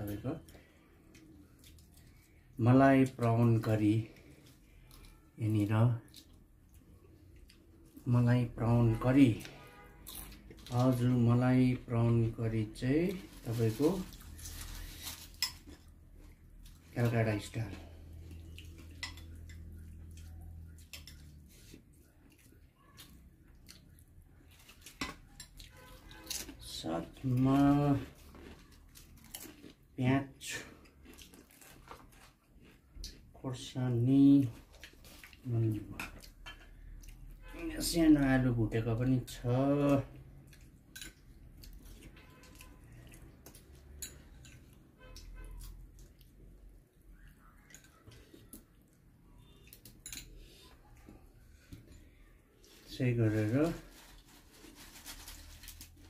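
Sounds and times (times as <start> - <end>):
chewing: 0.4 - 2.5, 17.7 - 26.6, 27.5 - 30.0, 30.7 - 33.4, 40.1 - 52.9.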